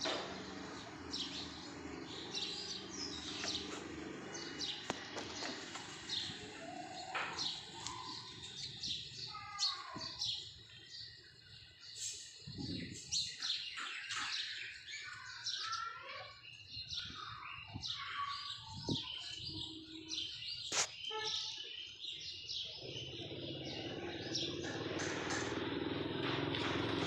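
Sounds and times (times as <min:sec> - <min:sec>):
motor rumble: 0:00.0 - 0:09.3, 0:22.9 - 0:27.0
small birds chirping: 0:00.0 - 0:27.0.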